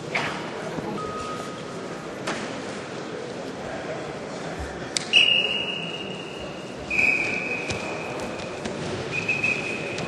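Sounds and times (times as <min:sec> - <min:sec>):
hall background noise: 0:00.0 - 0:10.0
referee's whistle blasts: 0:05.1 - 0:08.1, 0:09.1 - 0:10.0.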